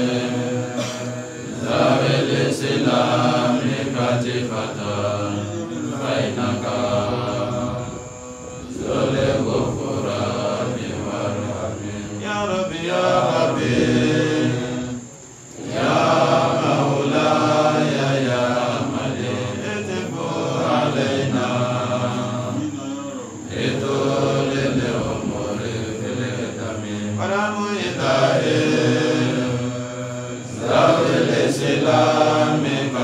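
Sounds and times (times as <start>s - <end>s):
man chanting: 3.6s - 13.8s, 18.2s - 23.9s, 24.8s - 30.6s.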